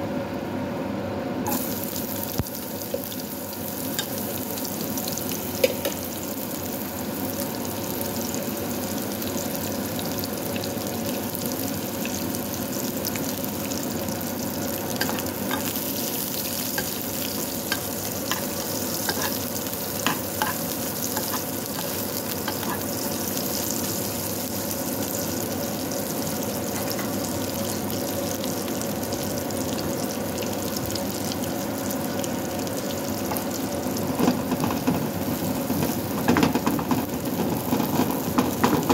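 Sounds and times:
onions sizzling in a pan: 0:01.5 - 0:38.9
metal spoon scraping a pan: 0:17.7 - 0:23.2.

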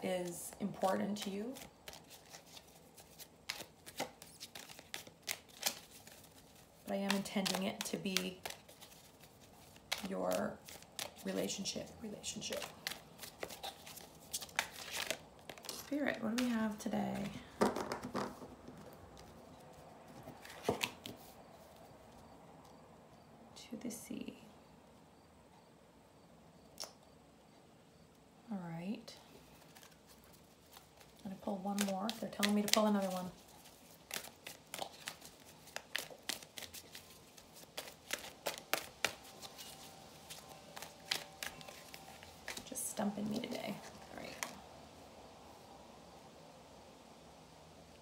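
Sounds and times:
cards being shuffled: 0:00.2 - 0:21.4, 0:29.6 - 0:44.6.

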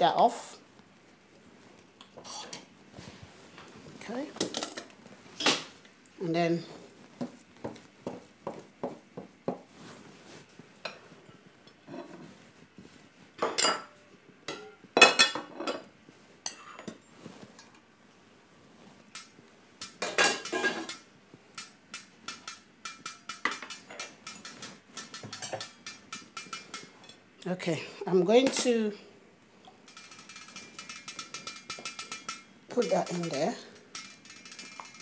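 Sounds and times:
small steel bowls clinking: 0:29.6 - 0:35.0.

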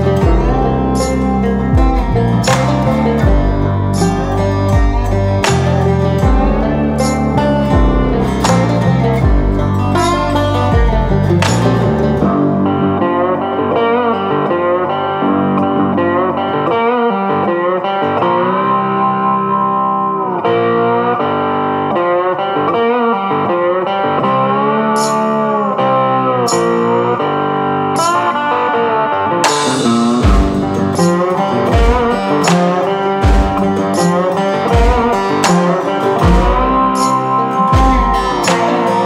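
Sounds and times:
low beats: 0:00.0 - 0:13.8, 0:29.4 - 0:39.0
sharp strikes: 0:00.0 - 0:14.3, 0:27.9 - 0:39.0
guitar music with bending notes: 0:00.0 - 0:39.0.

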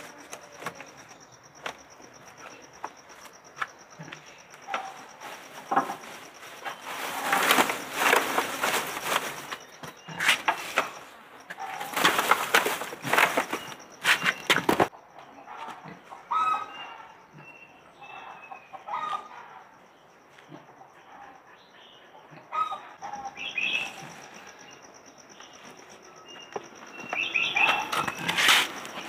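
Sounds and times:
wing flapping and scuffling: 0:00.0 - 0:14.9, 0:25.2 - 0:29.0
chickens clucking: 0:00.0 - 0:19.7, 0:20.4 - 0:29.0.

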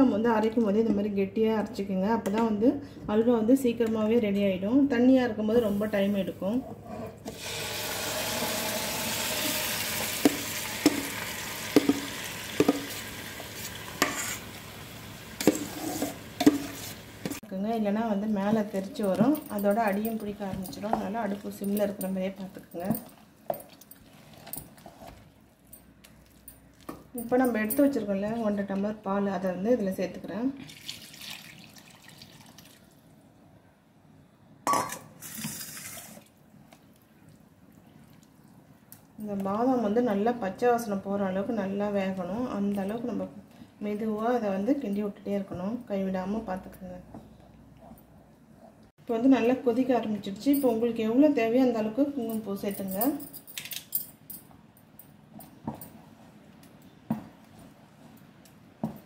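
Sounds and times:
ghee sizzling in pan: 0:07.3 - 0:17.4.

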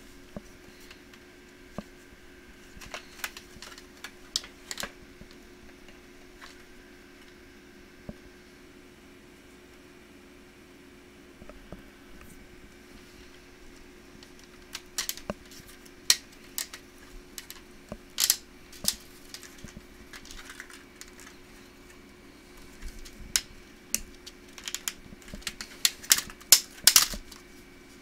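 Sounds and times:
faint steady hum: 0:00.0 - 0:28.0
plastic laptop parts clicking: 0:02.8 - 0:05.0, 0:14.2 - 0:17.6, 0:18.2 - 0:21.4, 0:22.6 - 0:27.4.

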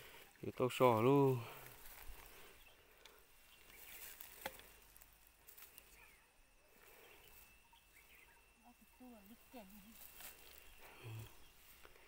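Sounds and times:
thin steady high tone: 0:02.4 - 0:12.0.

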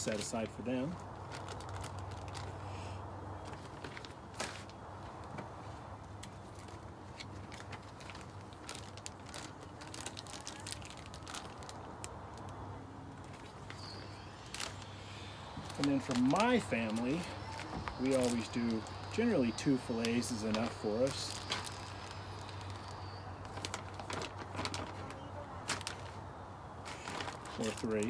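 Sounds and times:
plastic bags crinkling: 0:00.0 - 0:02.6, 0:03.3 - 0:28.0
low hum: 0:11.8 - 0:24.9.

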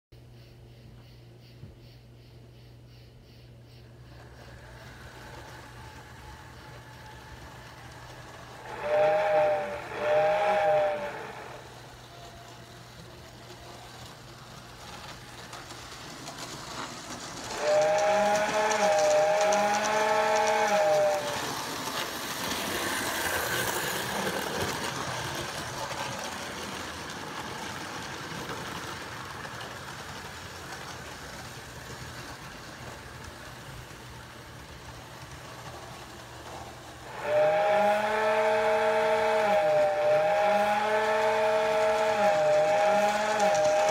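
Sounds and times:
steam hiss: 0:03.8 - 0:43.9
model locomotive chime whistle: 0:08.7 - 0:12.4, 0:17.5 - 0:22.0, 0:37.1 - 0:43.9.

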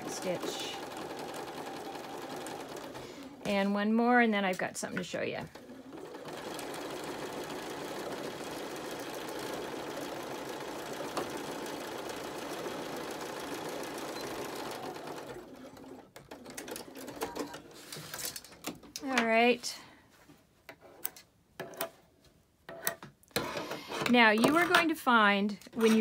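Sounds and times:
electric sewing machine running: 0:00.0 - 0:03.5, 0:05.5 - 0:17.4.

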